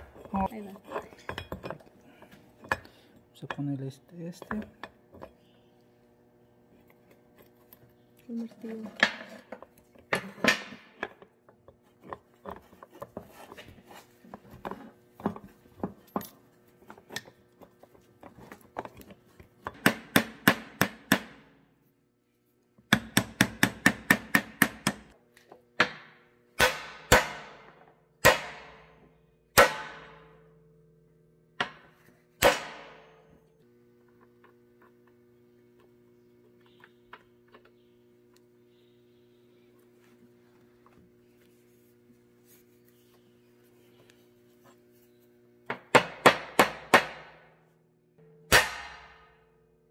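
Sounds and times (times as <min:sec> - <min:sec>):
hammer striking metal joint: 0:25.8 - 0:28.9, 0:48.2 - 0:49.5.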